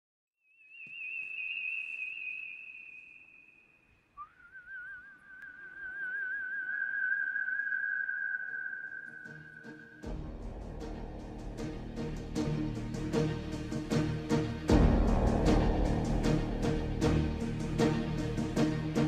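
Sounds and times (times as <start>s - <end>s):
man whistling with warble: 0.7s - 10.1s.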